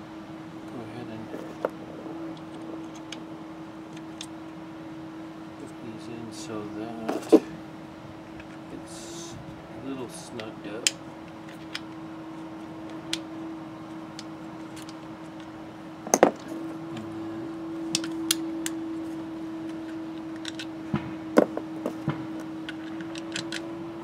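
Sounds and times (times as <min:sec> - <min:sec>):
steady hum: 0:00.0 - 0:24.0
parts knocking: 0:16.1 - 0:16.5, 0:20.4 - 0:23.6.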